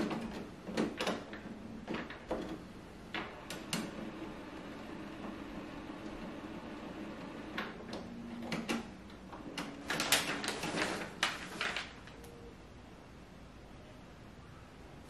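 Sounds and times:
printer motor hum: 0.0s - 11.2s
printer mechanical clicks and clacks: 0.0s - 12.4s.

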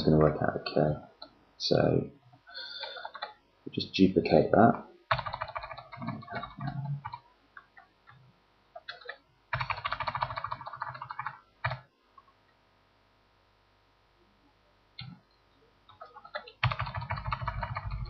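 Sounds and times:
computer keyboard typing: 2.8s - 3.4s, 5.1s - 8.2s, 8.8s - 11.9s, 15.9s - 18.0s.

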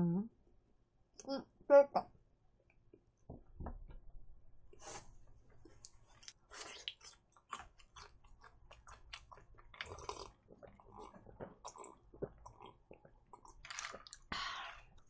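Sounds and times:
person chewing food: 4.8s - 15.0s
person sipping and swallowing drink: 8.8s - 15.0s.

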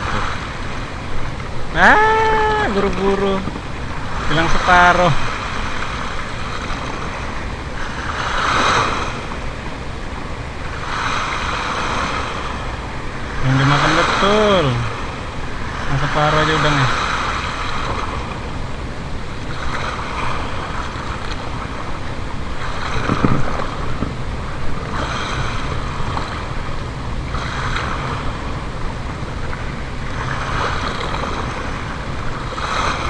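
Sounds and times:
waves washing against rocks: 0.0s - 33.0s
wind buffeting microphone: 16.6s - 33.0s.

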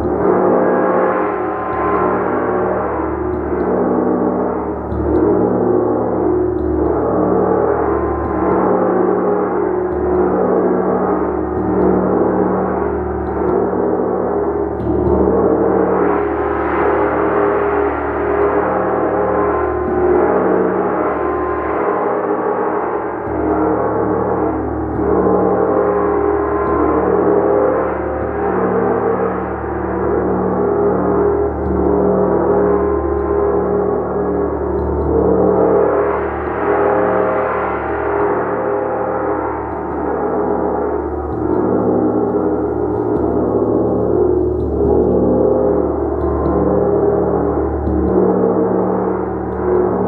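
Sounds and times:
gong struck with a mallet: 0.0s - 50.0s.

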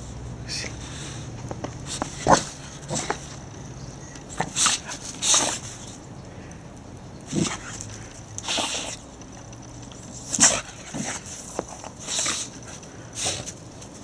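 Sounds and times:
dog sniffing and blowing: 10.3s - 13.6s.

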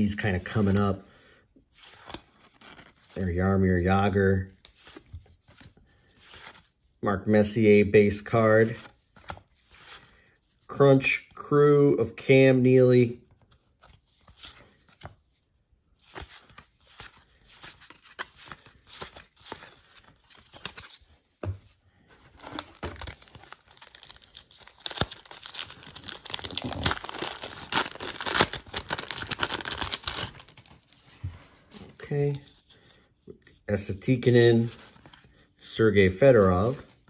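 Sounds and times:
wrapper crinkling and tearing: 22.3s - 30.7s.

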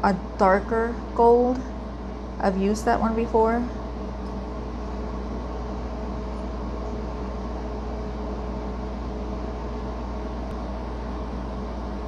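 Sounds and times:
mechanical hum: 0.0s - 12.0s.

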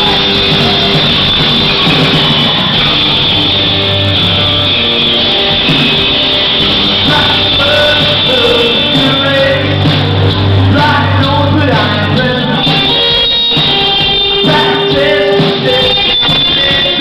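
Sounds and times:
live rock band playing: 0.0s - 17.0s
man singing: 7.0s - 17.0s.

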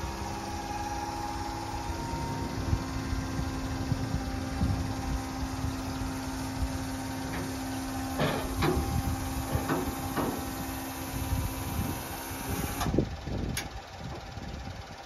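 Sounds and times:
lift mechanism hum: 0.0s - 13.8s
engine idling: 0.0s - 15.0s
truck bed knocks: 7.2s - 10.6s.

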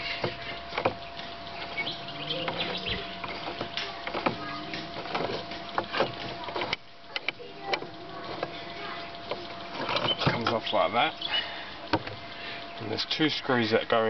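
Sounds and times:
metallic clicks and knocks: 0.2s - 10.6s.

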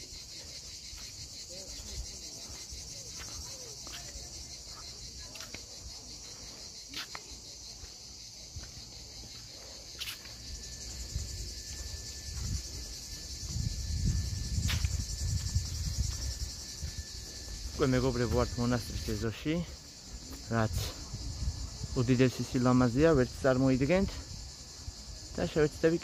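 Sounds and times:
insects chorus: 0.0s - 26.0s.

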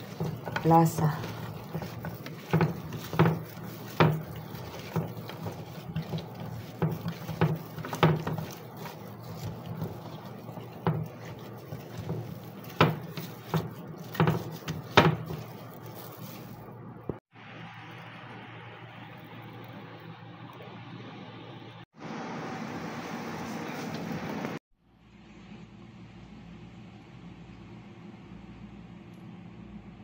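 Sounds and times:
wet squelching: 0.0s - 17.2s.

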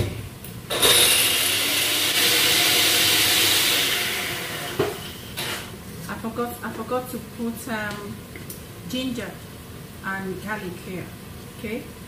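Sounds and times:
blender whirring: 0.7s - 5.7s.

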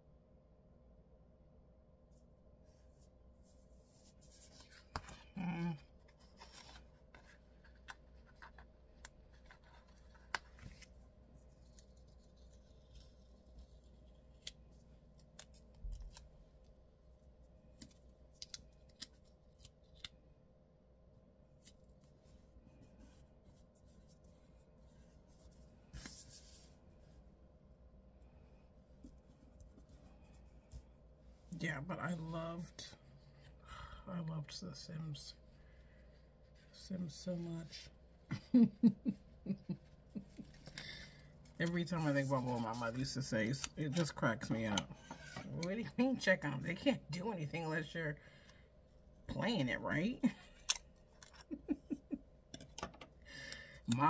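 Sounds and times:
paper rustling: 6.0s - 14.5s, 22.0s - 27.2s.

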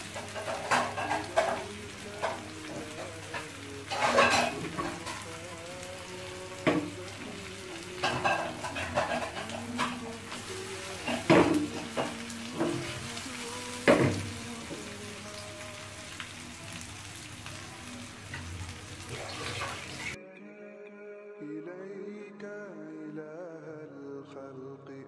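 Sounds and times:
fish sizzling in a pan: 0.0s - 20.2s
music: 0.0s - 25.0s
pan knocking on a grate: 11.0s - 12.9s, 13.8s - 14.3s.

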